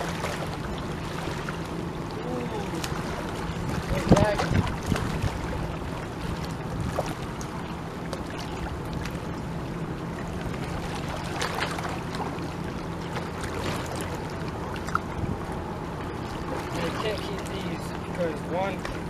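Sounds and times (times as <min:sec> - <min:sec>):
distant boat motor hum: 0:00.0 - 0:19.0
wind: 0:00.0 - 0:19.0
lapping water: 0:10.2 - 0:15.4.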